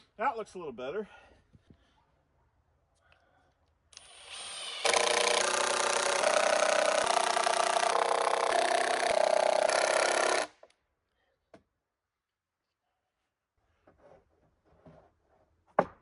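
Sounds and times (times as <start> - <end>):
impact driver hammering screw: 4.0 - 10.6.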